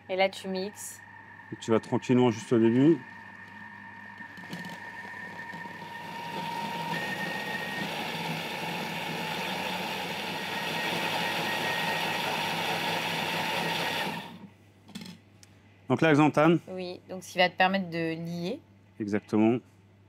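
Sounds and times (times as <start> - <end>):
food processor motor whine: 1.0 - 14.5.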